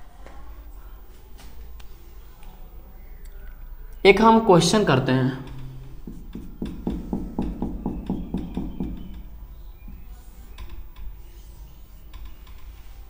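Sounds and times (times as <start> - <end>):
faint taps and scrapes: 5.4 - 13.0
pen scratching on a board: 6.0 - 9.2.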